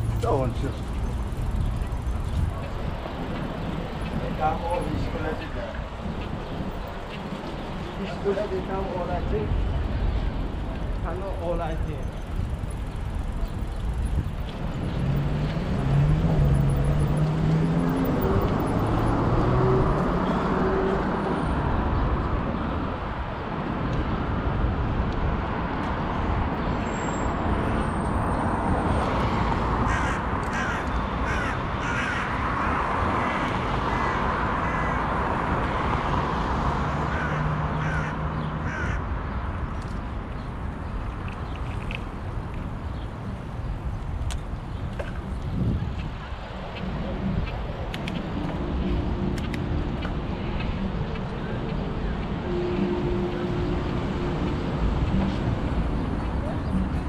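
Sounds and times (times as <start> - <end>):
traffic rush: 0.0 - 57.0
wind: 0.0 - 57.0.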